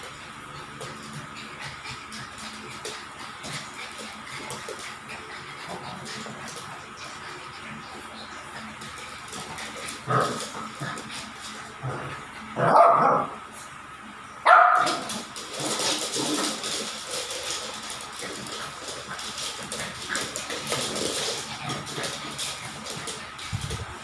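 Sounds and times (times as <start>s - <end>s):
dog barking: 12.6s - 13.3s, 14.5s - 15.0s.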